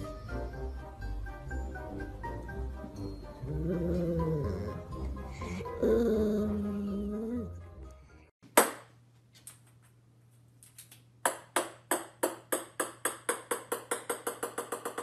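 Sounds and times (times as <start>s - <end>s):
ping-pong ball bouncing on wood floor: 11.2s - 15.0s.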